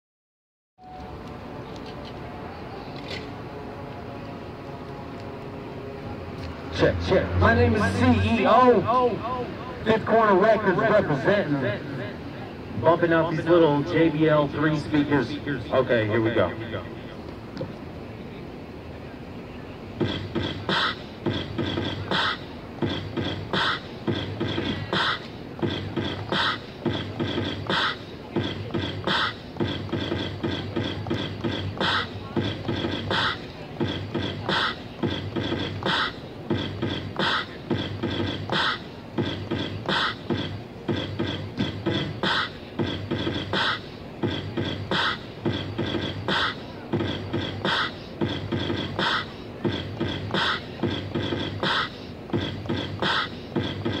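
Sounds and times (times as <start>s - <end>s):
drum machine beat through speakers: 20.0s - 54.0s.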